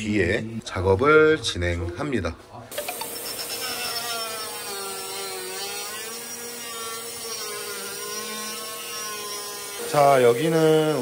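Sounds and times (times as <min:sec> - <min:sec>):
mini grinder motor whining: 0:02.8 - 0:11.0.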